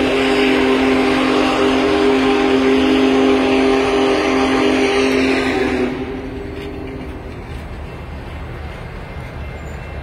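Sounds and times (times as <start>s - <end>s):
steam locomotive chime whistle: 0.0s - 7.2s
airy steam hiss: 0.0s - 9.8s.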